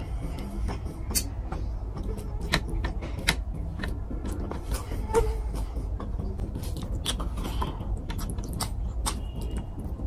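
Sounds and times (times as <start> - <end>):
steady low rumble: 0.0 - 10.0
fingers squelching food: 6.0 - 10.0.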